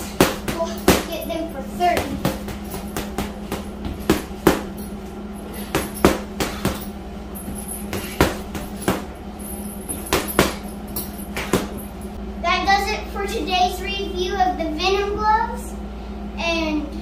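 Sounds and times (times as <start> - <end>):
boxing gloves punching heavy bag: 0.0 - 12.0.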